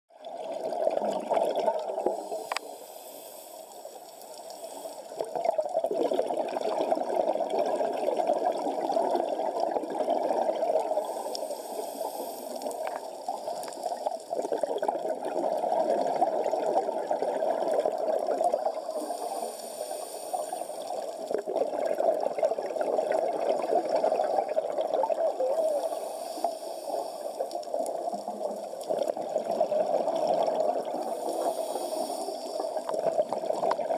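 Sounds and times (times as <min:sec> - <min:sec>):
muffled underwater water rush: 0:00.1 - 0:33.9
exhaled bubbles hissing: 0:00.2 - 0:33.9.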